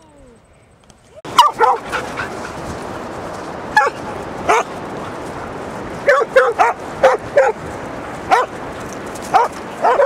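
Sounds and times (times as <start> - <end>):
dog barking: 1.3 - 2.3, 3.8 - 4.7, 6.0 - 7.6, 8.3 - 8.5, 9.3 - 10.0.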